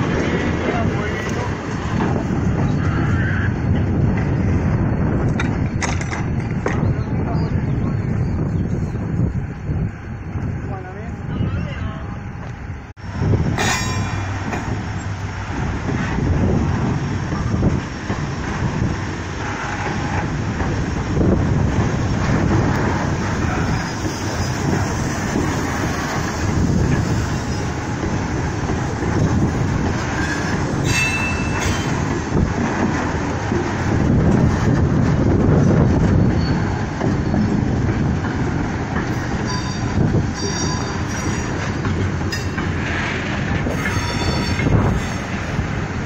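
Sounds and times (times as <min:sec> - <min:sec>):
train wagons clanking: 0:00.0 - 0:08.8, 0:12.2 - 0:46.0
freight train wagons rumbling: 0:00.0 - 0:46.0
train wheel squeal: 0:23.5 - 0:25.2, 0:26.2 - 0:27.8, 0:30.2 - 0:32.0, 0:36.1 - 0:37.5, 0:39.4 - 0:41.7, 0:43.7 - 0:45.4.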